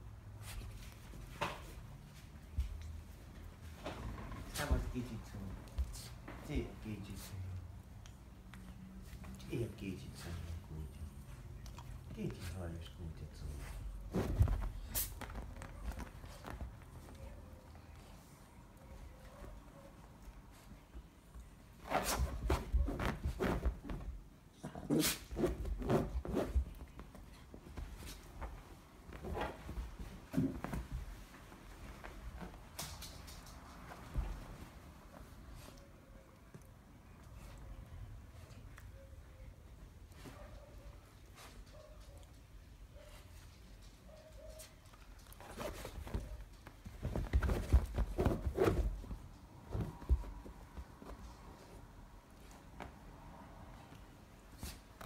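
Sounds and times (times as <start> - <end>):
animals rustling and scuffling: 13.4 - 21.1, 25.0 - 36.0, 40.0 - 55.0
scuffling in fabric pet bed: 45.4 - 51.8.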